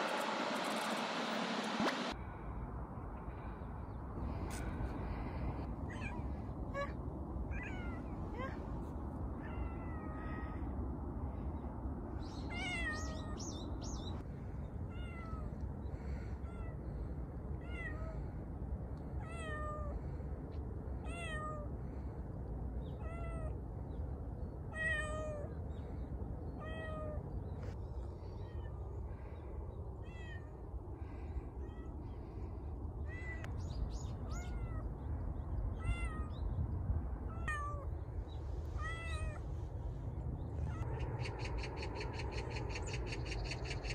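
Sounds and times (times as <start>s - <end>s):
cat meowing: 5.9s - 8.6s, 9.4s - 10.6s, 12.5s - 13.4s, 14.9s - 15.6s, 17.6s - 18.2s, 19.2s - 20.0s, 21.0s - 21.7s, 23.0s - 23.6s, 24.7s - 25.5s, 26.6s - 27.2s, 30.0s - 30.6s, 33.0s - 33.5s, 34.2s - 34.9s, 35.8s - 36.3s, 37.3s - 37.9s, 38.8s - 39.4s.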